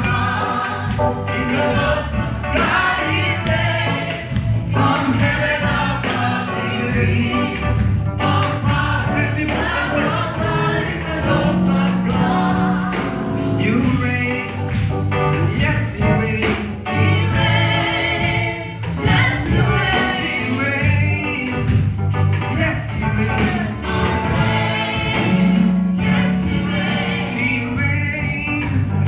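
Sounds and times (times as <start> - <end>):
choir singing: 0.0 - 13.7, 16.9 - 20.9, 23.6 - 27.8
bass line: 0.0 - 29.0
guitar: 0.0 - 29.0
lead singer: 0.0 - 29.0.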